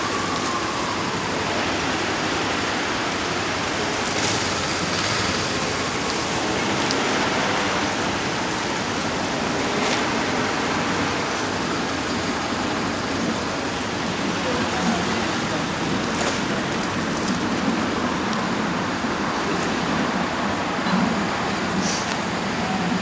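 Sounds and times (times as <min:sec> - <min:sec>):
road traffic passing: 0:00.0 - 0:23.0.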